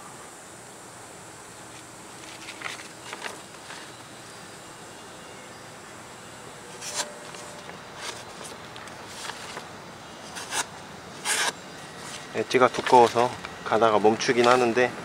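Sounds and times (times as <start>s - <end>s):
knife slicing paper: 10.3s - 13.3s.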